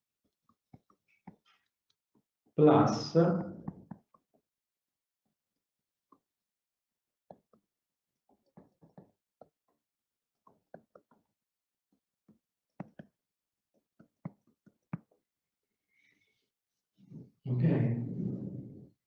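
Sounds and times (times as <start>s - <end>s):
stylus tapping on pen tablet: 0.5s - 1.4s, 8.3s - 9.8s, 10.4s - 11.3s, 12.3s - 13.2s, 13.8s - 15.2s.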